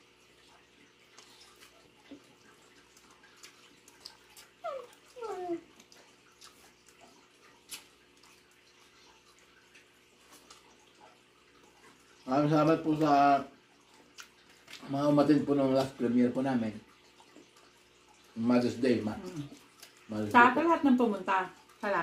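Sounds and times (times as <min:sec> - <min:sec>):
chewing and utensil clicks: 0:01.1 - 0:08.9, 0:13.9 - 0:14.9, 0:19.2 - 0:20.4.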